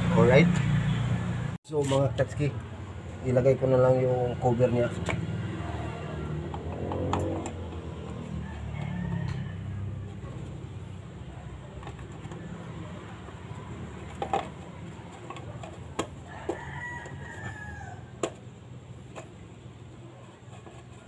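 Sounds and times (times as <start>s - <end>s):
rooster crowing: 7.2s - 10.6s, 16.2s - 18.4s
plastic wheel cover clicking: 11.7s - 12.6s, 14.0s - 19.4s.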